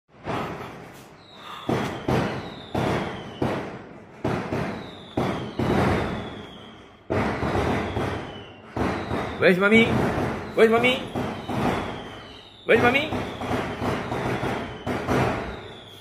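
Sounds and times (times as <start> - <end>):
firework bangs: 0.1 - 16.0
high descending whistle: 14.5 - 16.0.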